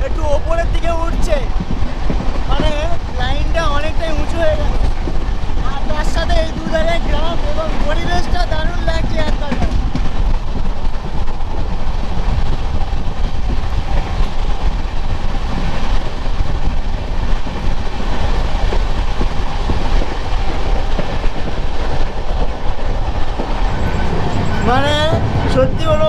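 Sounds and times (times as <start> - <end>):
train wheels rumbling on track: 0.0 - 26.0.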